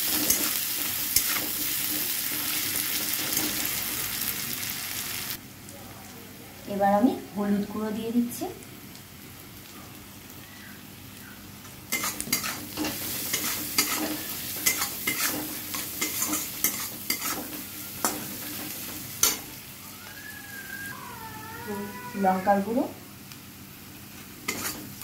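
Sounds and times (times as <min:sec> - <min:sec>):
onions sizzling in hot oil: 0:00.0 - 0:05.7, 0:06.6 - 0:25.0
metal spatula scraping pan: 0:11.9 - 0:19.5, 0:24.5 - 0:25.0.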